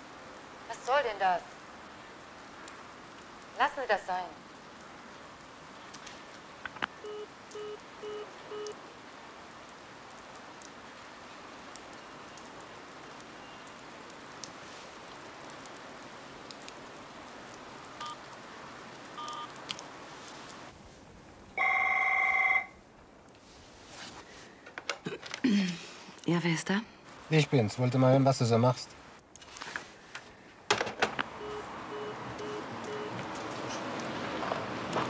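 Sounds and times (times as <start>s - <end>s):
rain hiss: 0.0s - 24.8s, 25.4s - 35.0s
telephone busy tone beeps: 7.0s - 8.8s, 18.0s - 18.2s, 19.2s - 19.5s, 21.6s - 22.7s, 31.4s - 33.2s
electronic telephone ring: 21.6s - 22.7s.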